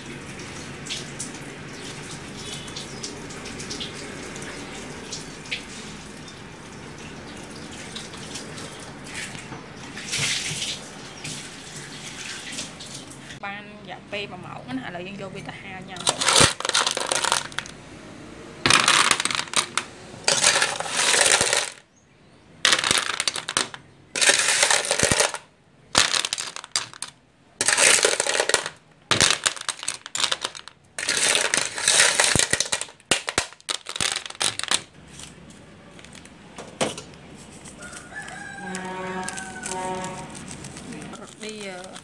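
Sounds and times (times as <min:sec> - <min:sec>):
clam shells clattering on metal: 0:16.0 - 0:17.7, 0:18.7 - 0:21.8, 0:22.7 - 0:34.9.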